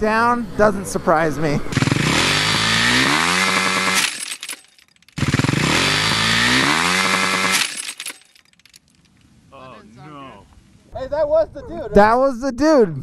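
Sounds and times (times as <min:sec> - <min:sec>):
motocross bike engine revving: 0:01.7 - 0:08.8.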